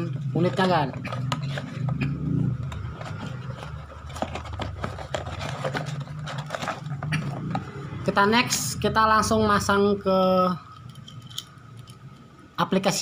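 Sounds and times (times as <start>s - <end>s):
cardboard box handling: 0.4s - 7.7s
paper rustling: 2.7s - 7.6s.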